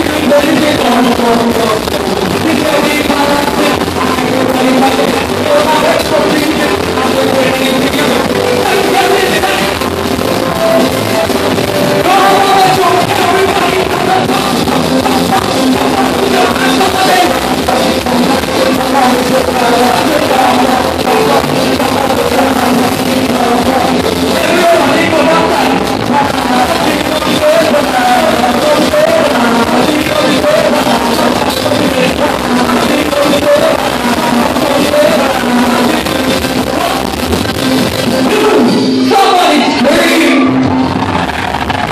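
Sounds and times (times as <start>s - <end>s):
drum kit: 0.0s - 41.9s
keyboards: 0.0s - 41.9s
person singing: 0.0s - 41.9s.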